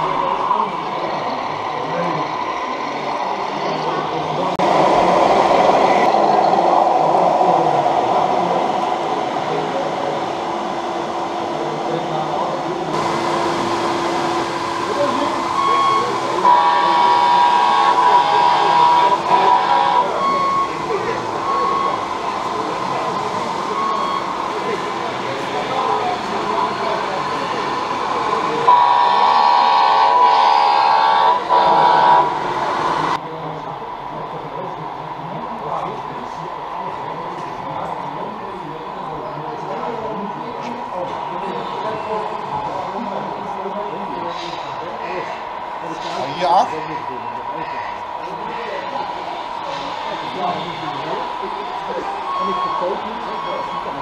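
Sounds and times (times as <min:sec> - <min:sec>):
hall background din: 0:00.0 - 0:33.2
diesel engine drone: 0:00.0 - 0:54.0
truck air horn blasts: 0:15.6 - 0:20.2, 0:28.7 - 0:32.4.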